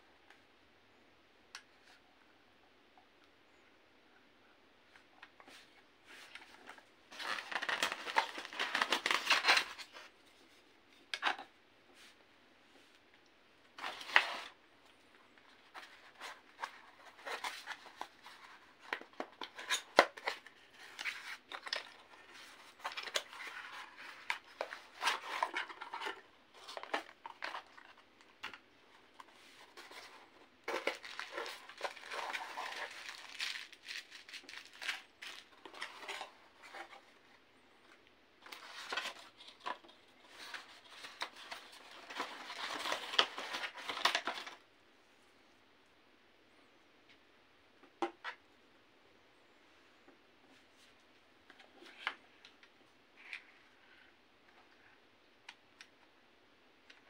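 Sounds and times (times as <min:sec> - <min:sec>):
packaging rustling and scraping: 0:05.6 - 0:10.6, 0:13.8 - 0:14.6, 0:15.4 - 0:37.2, 0:38.4 - 0:44.6.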